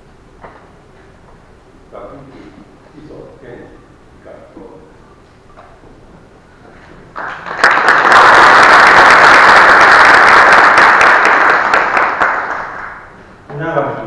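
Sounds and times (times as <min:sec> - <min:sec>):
audience applauding: 0:07.1 - 0:13.2.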